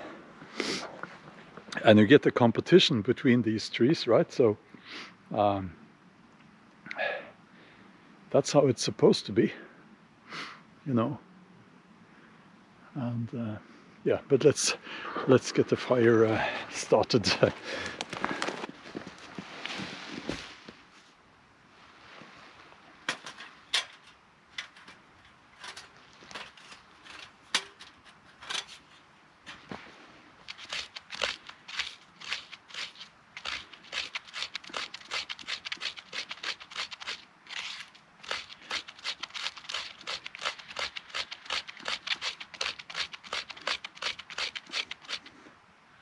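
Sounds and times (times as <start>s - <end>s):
metal camp stove clicking and clanking: 23.1s - 28.9s
knife scraping bark: 30.4s - 45.3s.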